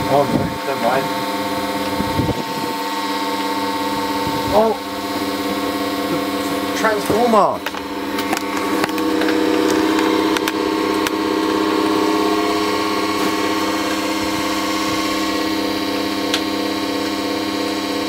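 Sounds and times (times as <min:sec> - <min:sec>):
fan blades rushing air: 0:00.0 - 0:18.0
loud electrical hum: 0:00.0 - 0:18.0.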